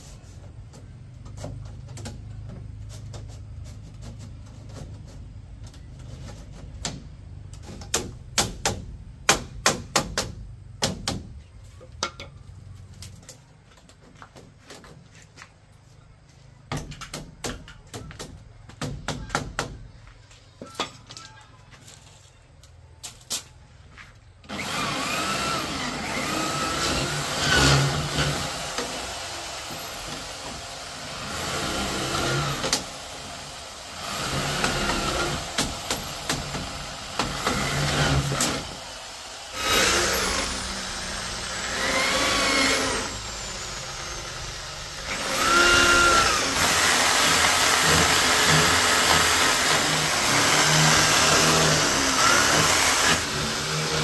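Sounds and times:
small motor revving: 0:24.5 - 0:54.0.

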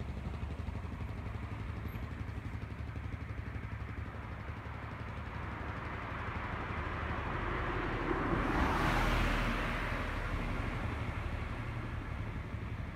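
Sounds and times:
low rumble of traffic: 0:00.0 - 0:12.9
car passing by: 0:06.2 - 0:12.4.

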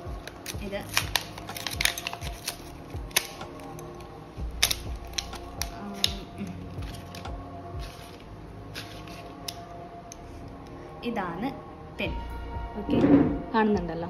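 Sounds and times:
packaging being torn open: 0:00.0 - 0:10.2
soft background music: 0:00.0 - 0:14.0.

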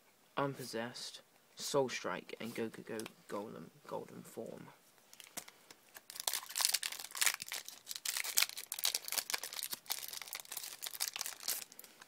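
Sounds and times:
foil wrapper tearing and crinkling: 0:05.2 - 0:12.0.

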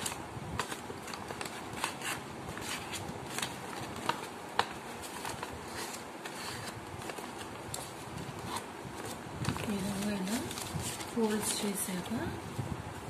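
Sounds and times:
paper being folded: 0:00.0 - 0:12.2
paper crackles: 0:00.0 - 0:12.3.

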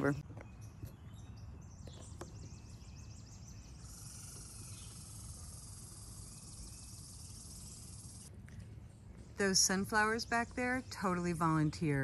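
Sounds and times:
high-pitched insect buzz: 0:03.8 - 0:08.3.

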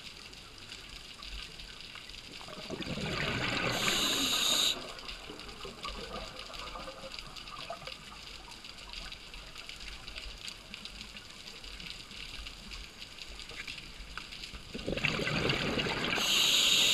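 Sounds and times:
underwater crackle of clicks: 0:00.0 - 0:16.9
scuba regulator bubbles gurgling: 0:02.3 - 0:10.2, 0:14.6 - 0:16.9.

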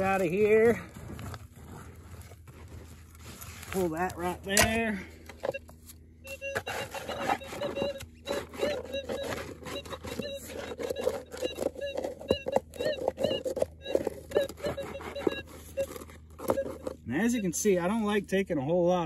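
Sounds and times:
metal detector warbling signal: 0:00.0 - 0:00.9, 0:06.3 - 0:18.2
coil scraping dirt and rocks: 0:00.0 - 0:05.5, 0:06.3 - 0:19.0
metal detector hum: 0:00.0 - 0:19.0.

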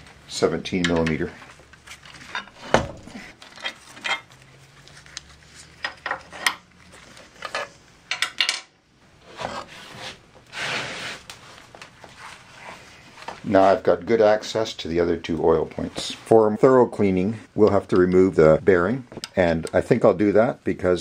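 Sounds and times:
metal scraping rub: 0:09.2 - 0:11.2.

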